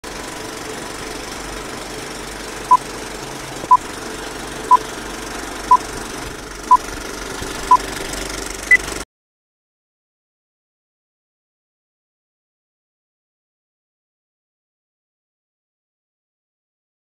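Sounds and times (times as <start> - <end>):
projector mechanical rattle: 0.1 - 9.0.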